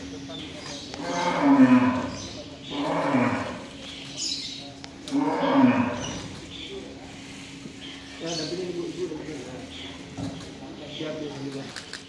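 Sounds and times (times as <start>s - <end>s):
cattle mooing: 1.0s - 3.7s, 5.1s - 6.2s.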